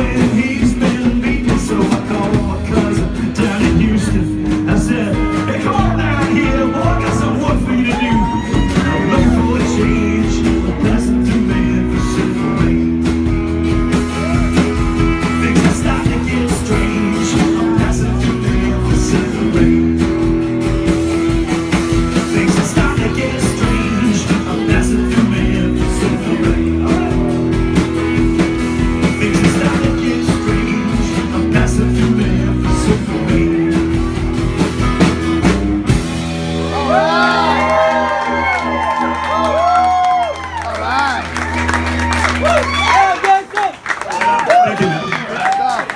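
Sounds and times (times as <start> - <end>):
strummed acoustic guitar: 0.0 - 36.6
live rock band playing: 0.0 - 45.9.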